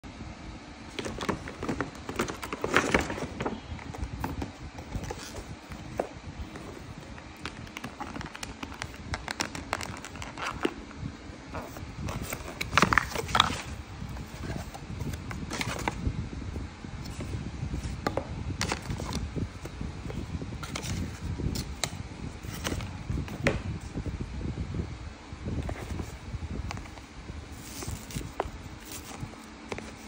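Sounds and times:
paper bag rustling: 0.9s - 10.7s.

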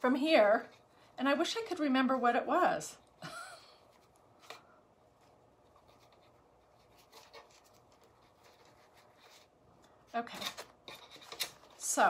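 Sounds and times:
fabric ribbon rustling: 3.8s - 12.0s.

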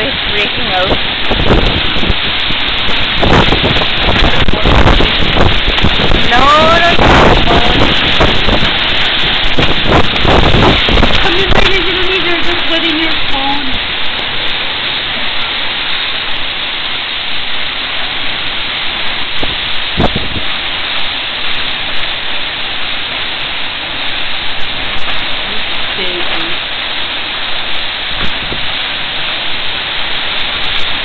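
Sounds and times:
heavy wind-driven rain: 0.0s - 31.0s.

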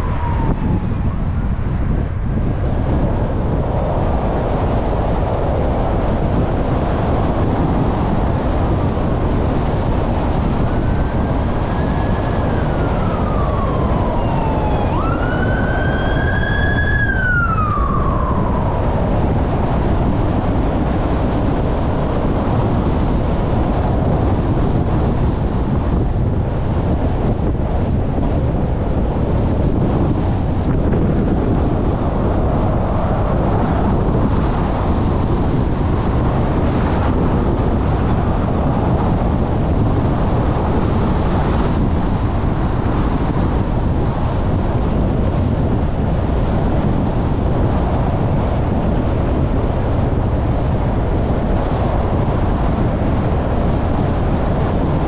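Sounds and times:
emergency siren wailing: 0.0s - 6.4s, 9.4s - 45.7s
car road and wind noise: 0.0s - 55.0s.

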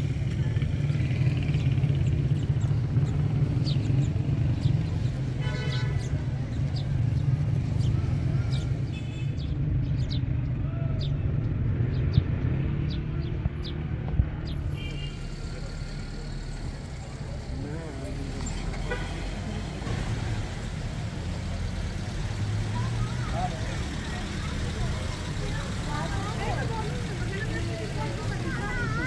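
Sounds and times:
low rumble of traffic: 0.0s - 29.0s
sparrows chirping: 0.3s - 20.1s.

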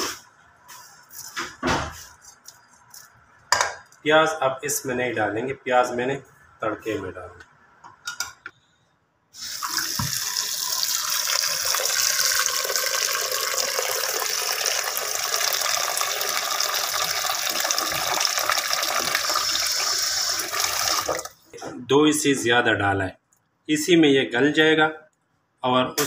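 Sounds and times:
water pouring into pot: 9.4s - 21.4s.

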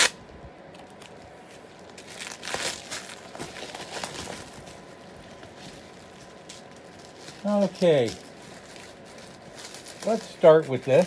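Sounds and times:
packaging crinkling: 0.8s - 11.0s.

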